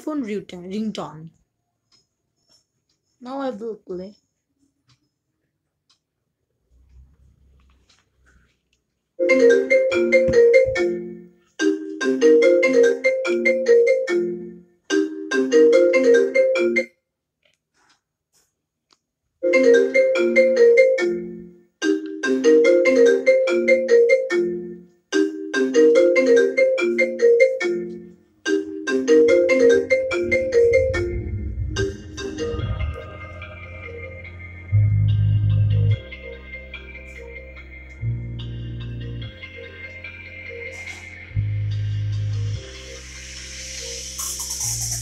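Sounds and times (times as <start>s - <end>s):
marimba ringtone melody: 9.2s - 17.0s, 19.4s - 37.8s.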